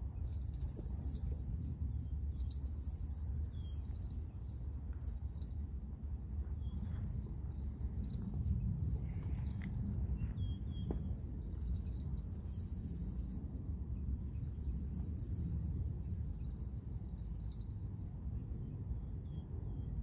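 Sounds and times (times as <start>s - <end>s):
low rumble: 0.0s - 20.0s
fishing reel whirring: 11.3s - 13.5s, 14.2s - 17.8s.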